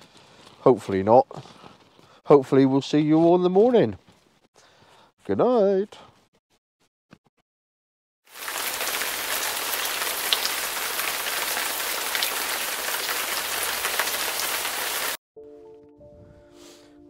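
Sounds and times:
rain on a tent: 8.3 - 15.2.

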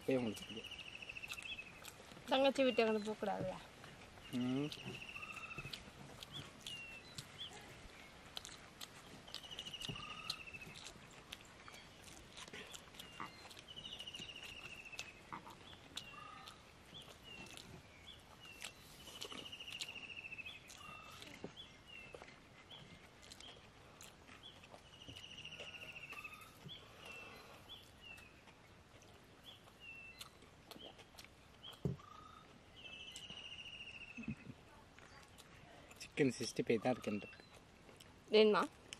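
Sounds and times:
trilled animal call: 9.3 - 11.0, 12.0 - 16.7, 32.0 - 32.6.

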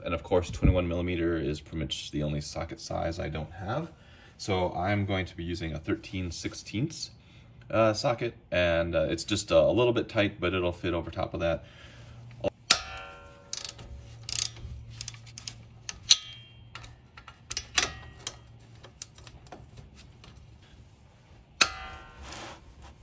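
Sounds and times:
sharp ringing clanks: 12.7 - 14.5, 15.9 - 18.6, 21.6 - 22.6
ratchet metallic clicks: 12.7 - 19.5.

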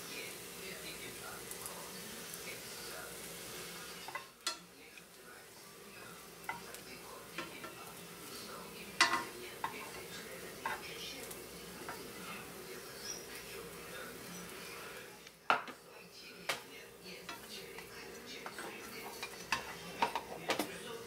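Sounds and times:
bread sizzling in butter: 0.0 - 21.0
chopsticks tapping pan: 4.0 - 5.1, 6.4 - 7.8, 9.0 - 12.5, 16.4 - 20.9.

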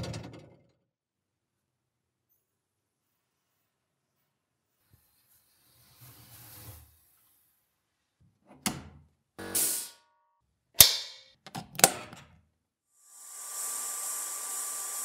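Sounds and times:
sandblasting gun hissing: 13.1 - 15.0.

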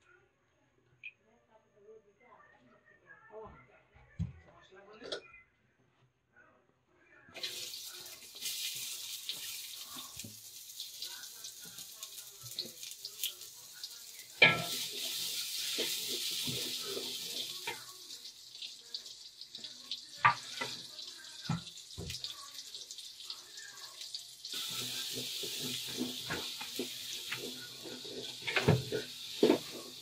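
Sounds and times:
onions sizzling in a pot: 7.4 - 30.0.

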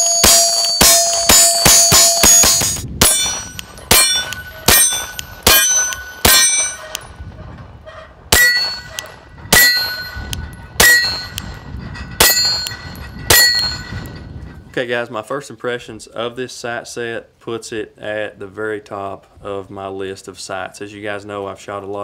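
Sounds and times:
steel target clanging: 0.0 - 7.2, 8.3 - 14.5.

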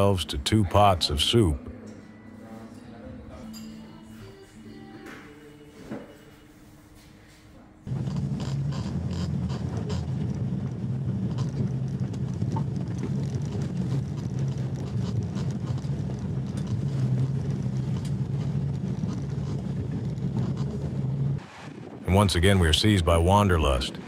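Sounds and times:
vehicle engine humming: 7.9 - 24.0.

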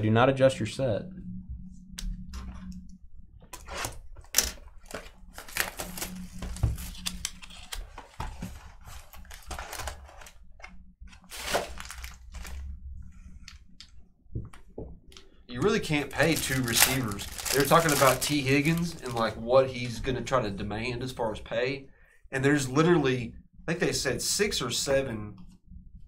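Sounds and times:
low steady hum: 0.0 - 26.0
light rustling of card packs: 3.6 - 13.6, 15.6 - 20.1.

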